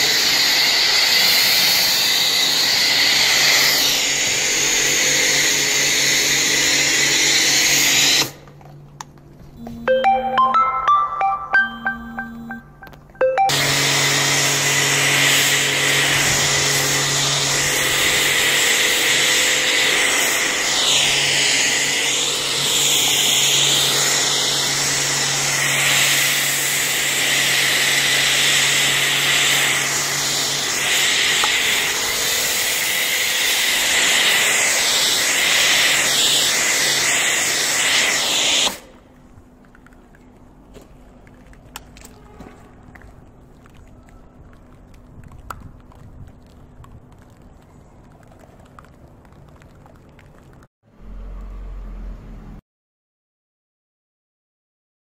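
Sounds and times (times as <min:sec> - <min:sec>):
pressure washer spraying: 0:00.0 - 0:08.4, 0:13.5 - 0:39.0.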